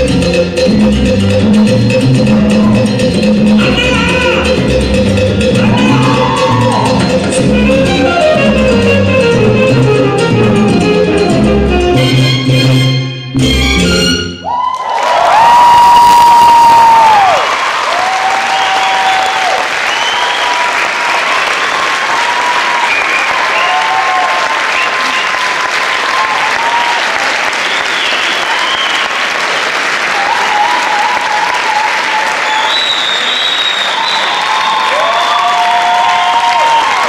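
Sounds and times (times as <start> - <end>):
cheers and whoops: 5.6 - 7.2, 14.4 - 37.0
audience clapping: 14.5 - 37.0.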